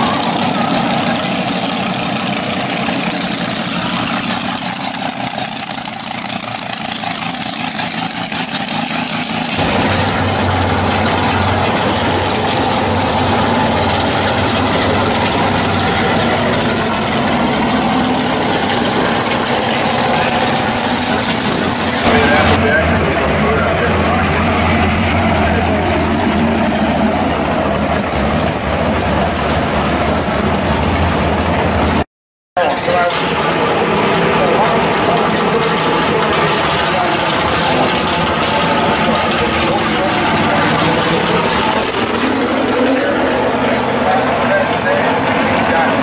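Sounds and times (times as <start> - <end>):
deep car engine driving past: 0.0 - 32.0
drag car engines idling: 0.0 - 32.0, 32.6 - 46.0.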